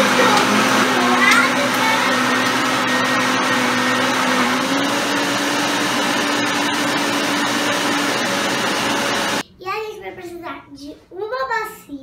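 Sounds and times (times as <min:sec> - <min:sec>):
blender motor running: 0:00.0 - 0:09.4.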